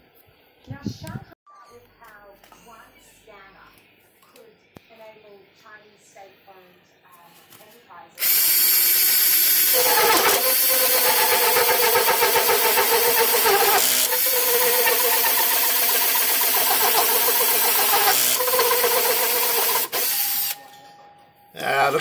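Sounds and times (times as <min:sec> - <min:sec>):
drill motor whining: 0:08.2 - 0:20.6
hole saw cutting wood: 0:08.2 - 0:20.6.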